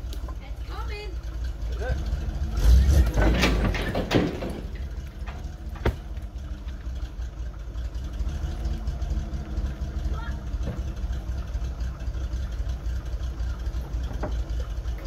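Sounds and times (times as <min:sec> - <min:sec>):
dump truck engine running: 0:00.0 - 0:15.0
logs tumbling and clattering: 0:02.9 - 0:07.0.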